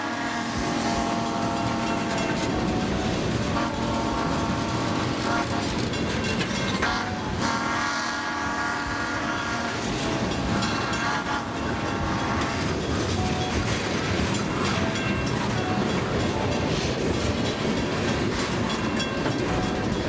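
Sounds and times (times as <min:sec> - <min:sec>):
train horn blast: 0:00.0 - 0:14.8
train wheels clattering: 0:00.0 - 0:20.0.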